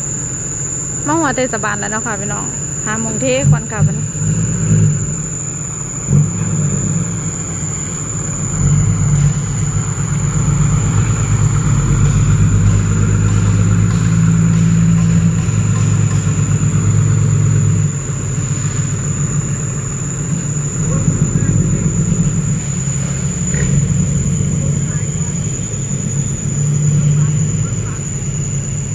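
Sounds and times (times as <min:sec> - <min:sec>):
dump truck diesel engines passing: 0:00.0 - 0:28.9.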